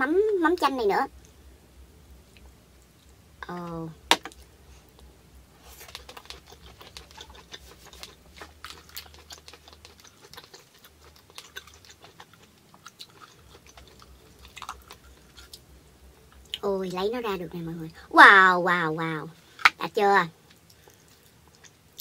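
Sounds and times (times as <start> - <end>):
soft chewing: 2.2 - 17.6, 20.3 - 22.0.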